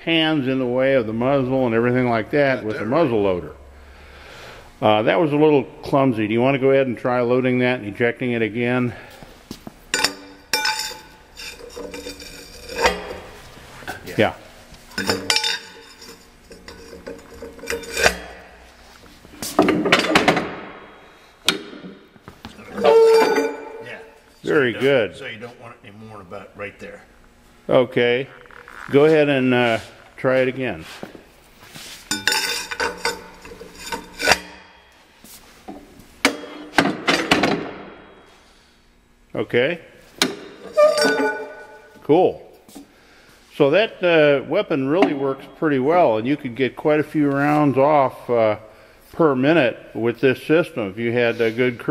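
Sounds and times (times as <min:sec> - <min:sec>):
metal scraping clatter: 0:10.0 - 0:14.1, 0:14.9 - 0:18.4, 0:40.6 - 0:42.0.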